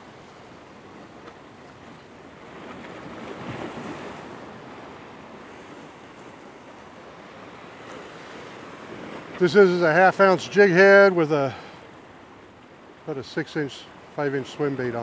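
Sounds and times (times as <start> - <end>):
surf breaking on rocks: 2.5 - 12.0.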